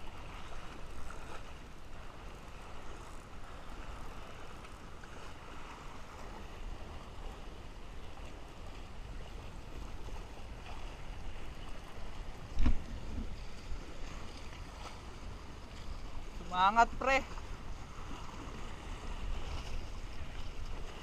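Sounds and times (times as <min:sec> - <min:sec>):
wind and water rumble: 0:00.0 - 0:21.0
knocks on boat: 0:12.5 - 0:13.3.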